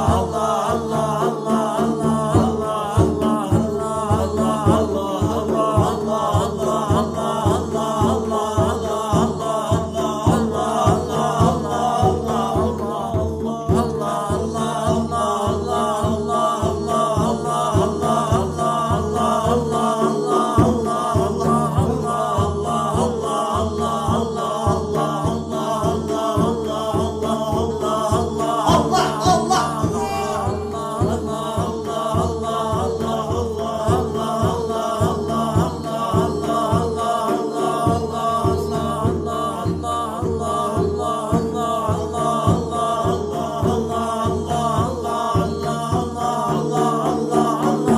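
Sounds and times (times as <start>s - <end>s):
voices chanting: 0.0s - 47.9s
deep repeating beat: 26.5s - 31.8s.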